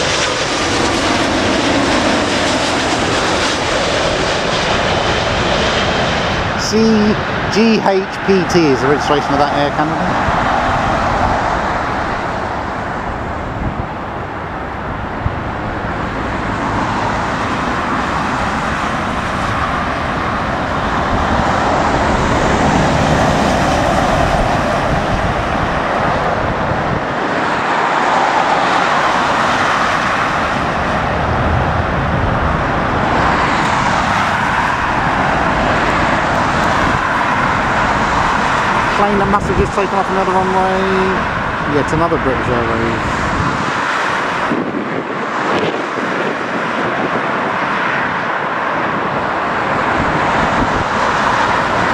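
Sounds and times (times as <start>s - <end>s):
jet engine of landing airliner: 0.0s - 51.9s
lorry passing: 0.0s - 51.9s
road traffic passing: 0.0s - 51.9s
wind buffeting microphone: 0.0s - 51.9s.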